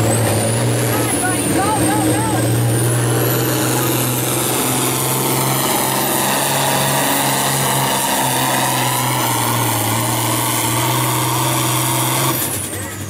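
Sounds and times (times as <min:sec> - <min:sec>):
diesel tractor engine under load: 0:00.0 - 0:13.0.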